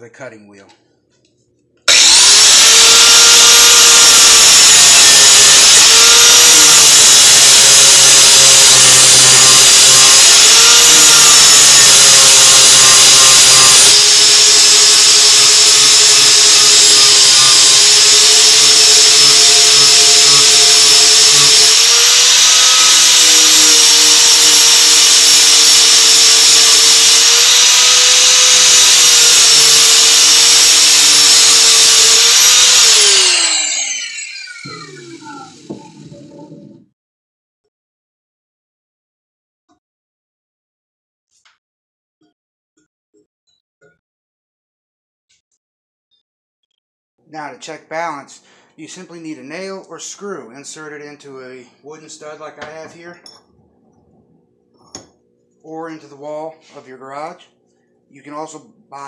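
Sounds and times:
angle grinder grinding steel: 0:01.9 - 0:36.8.

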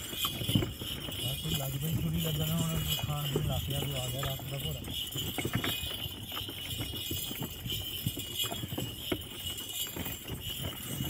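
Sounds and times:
chain traces rattling: 0:00.0 - 0:11.0
metallic jingling: 0:00.0 - 0:11.0
wooden cart knocking and rattling: 0:00.0 - 0:11.0.

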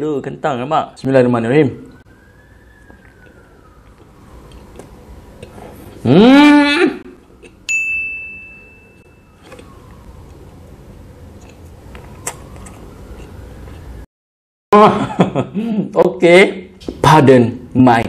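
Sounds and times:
bell-like ding: 0:07.7 - 0:09.4.

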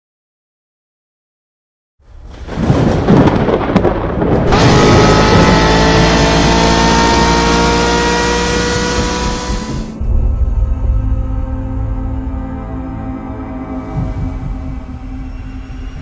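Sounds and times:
deep thunder-like rumble: 0:02.0 - 0:06.5
whooshing riser: 0:04.5 - 0:12.2.

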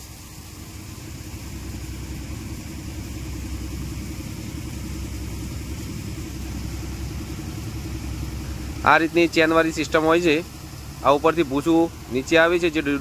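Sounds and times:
thresher rumbling: 0:00.0 - 0:13.0.

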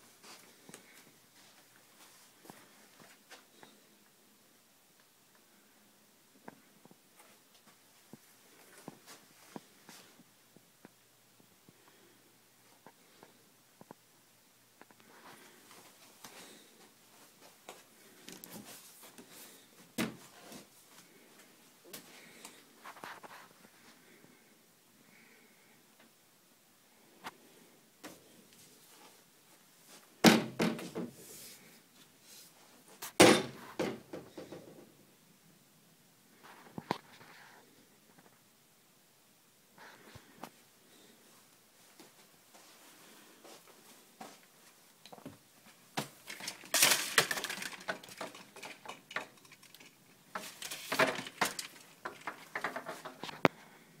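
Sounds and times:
window blind slats clattering: 0:46.2 - 0:53.3.

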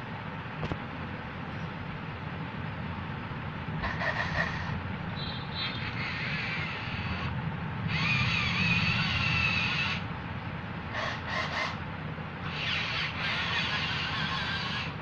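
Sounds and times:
small electric motors whirring: 0:05.7 - 0:10.1, 0:12.4 - 0:15.0.

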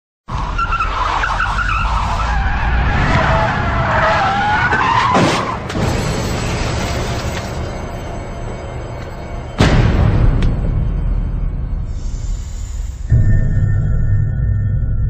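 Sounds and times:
car tyres screeching: 0:00.3 - 0:05.8
low rumble: 0:09.3 - 0:15.0.

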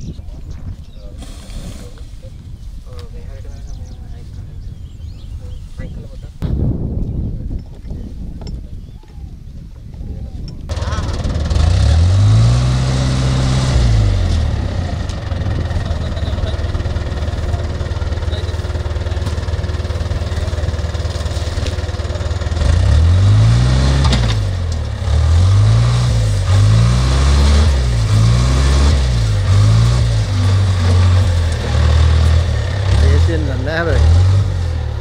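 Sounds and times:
diesel engine revving: 0:10.7 - 0:35.0.

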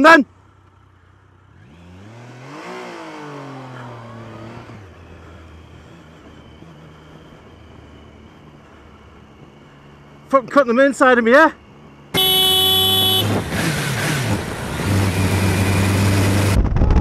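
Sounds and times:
motorcycle engine revving: 0:00.3 - 0:10.1, 0:11.9 - 0:17.0
wind noise: 0:16.2 - 0:17.0.

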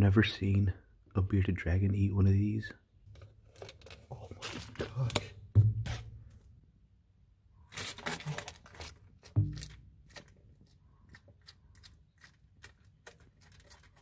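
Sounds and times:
lizard crunching insect pupa: 0:07.7 - 0:14.0.

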